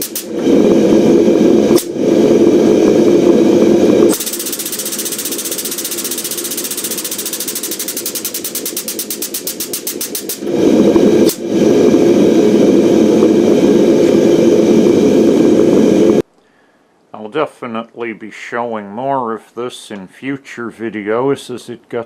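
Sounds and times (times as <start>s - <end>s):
sharp click: 0.0s - 0.3s, 4.1s - 10.4s
air pump pulsing: 0.0s - 16.2s
steady mechanical drone: 0.0s - 16.2s.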